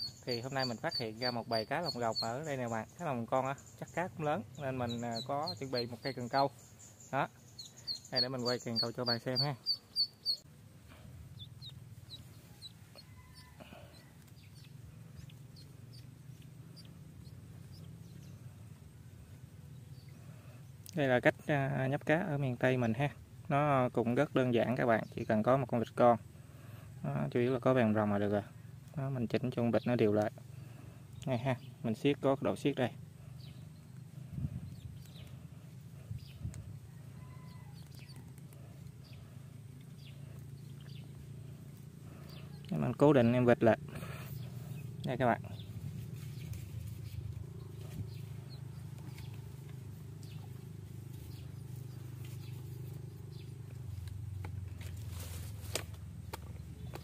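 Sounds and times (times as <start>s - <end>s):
duckling peeping: 0.0s - 10.5s, 11.3s - 18.3s
steady low hum: 0.0s - 57.0s.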